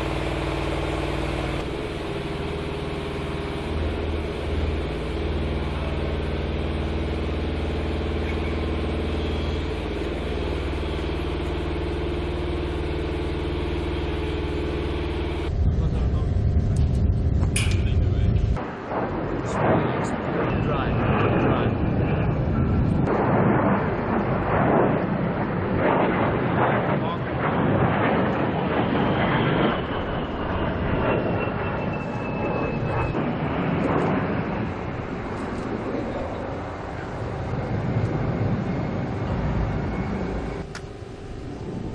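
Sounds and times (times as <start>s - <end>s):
engine idling: 0.0s - 18.6s
jet flying past: 0.0s - 41.9s.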